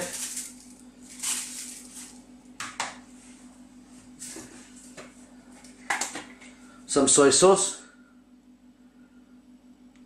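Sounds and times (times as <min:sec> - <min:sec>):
teaspoon scraping aluminium foil: 0:00.0 - 0:02.2.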